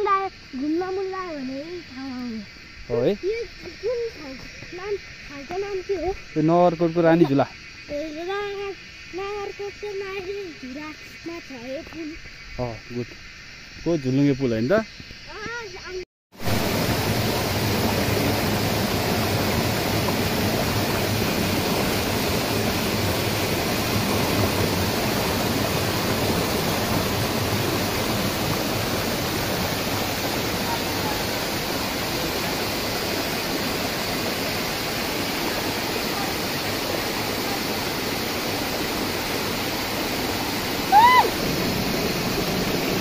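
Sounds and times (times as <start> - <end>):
waterfall pouring over rocks: 16.4 - 43.0.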